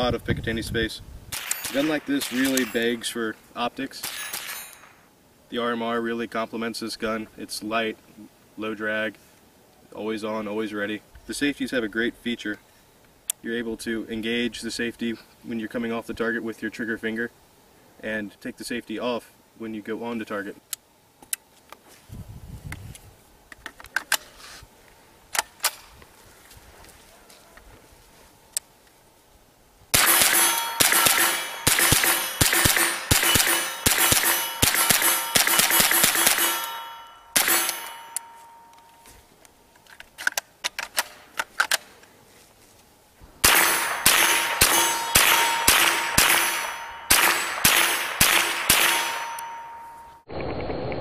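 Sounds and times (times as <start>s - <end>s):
rifle shots: 1.3s - 2.9s, 4.0s - 4.9s, 29.9s - 38.3s, 43.4s - 50.0s
rifle handling clicks: 1.4s - 2.8s, 37.4s - 42.1s
bullet clanging on steel target: 1.4s - 3.1s, 4.0s - 5.0s, 30.0s - 39.1s, 43.4s - 50.2s.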